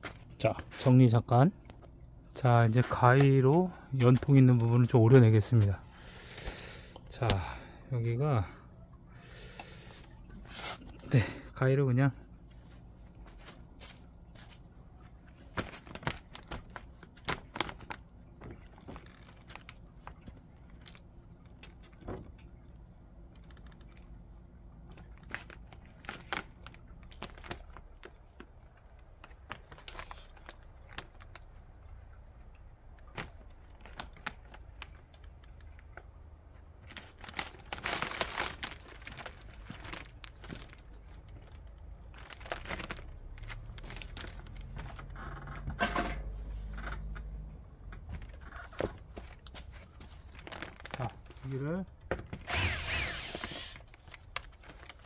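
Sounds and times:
sheeting rustling and crinkling: 12.5s - 22.7s, 23.3s - 45.2s, 48.2s - 51.8s, 53.0s - 55.0s.

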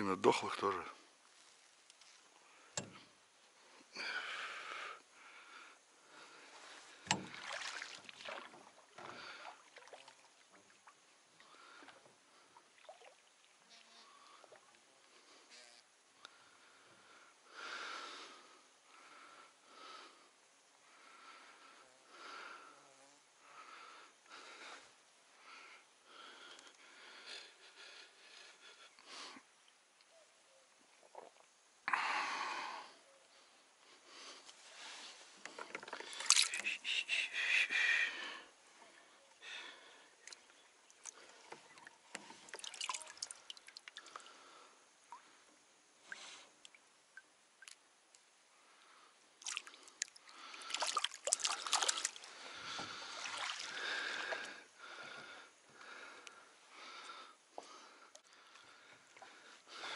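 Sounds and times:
splashing and knocking: 7.1s - 10.2s, 42.5s - 44.0s, 50.7s - 52.2s
water dripping: 40.2s - 44.4s, 46.1s - 47.8s, 49.4s - 52.4s.

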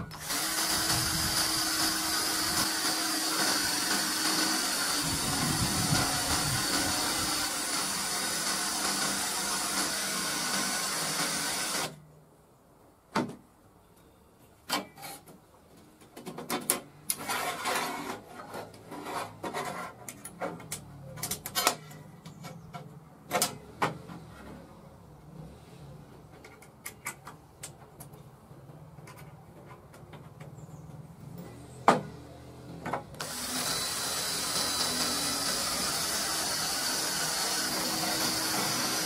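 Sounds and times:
cordless drill boring into steel: 0.0s - 12.0s, 33.2s - 39.0s.

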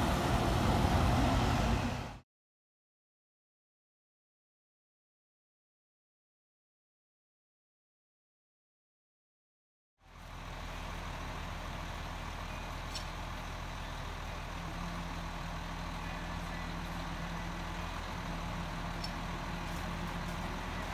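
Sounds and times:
diesel engine idling: 0.0s - 2.2s, 10.0s - 20.9s.

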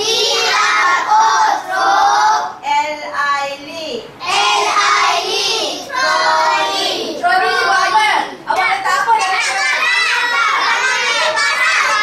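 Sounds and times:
children singing a chant: 0.0s - 2.6s, 4.2s - 7.9s, 9.6s - 12.0s.

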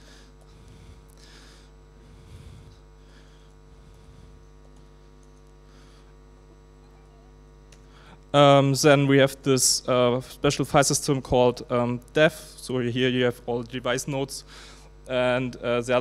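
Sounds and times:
electrical mains hum: 0.0s - 16.0s.

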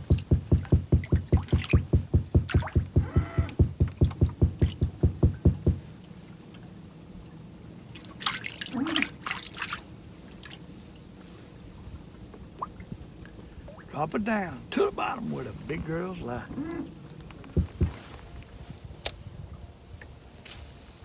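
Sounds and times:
rapid regular thumping: 0.0s - 5.9s, 17.4s - 18.0s
water splashing and trickling: 0.0s - 21.0s.

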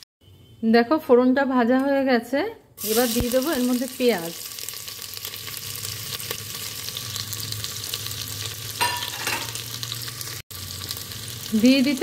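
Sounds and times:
onions sizzling in hot oil: 2.8s - 12.0s.

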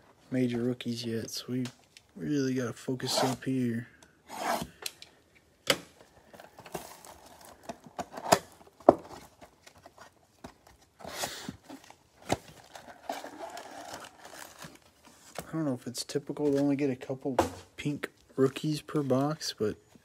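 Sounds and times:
cutter scraping cardboard: 3.1s - 3.4s, 4.3s - 4.7s.

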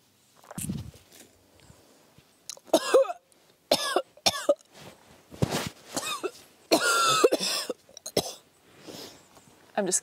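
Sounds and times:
woman coughing and gagging: 2.7s - 4.6s, 6.0s - 8.4s.

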